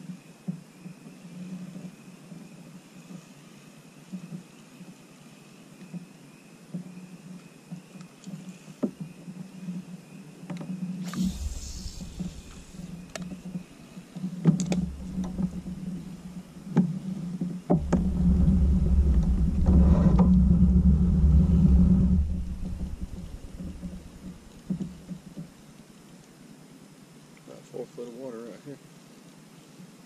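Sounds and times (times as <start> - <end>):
kayak pedal drive rumbling: 11.1 - 13.7, 14.5 - 25.6.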